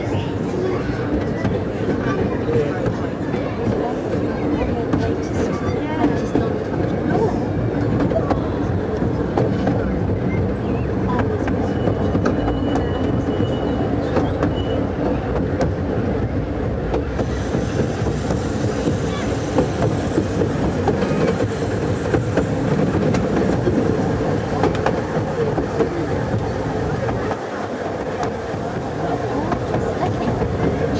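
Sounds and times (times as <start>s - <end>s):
train wheels rumbling: 0.0s - 30.9s
wheels clicking over rails: 0.8s - 30.9s
steam hiss: 17.1s - 24.6s.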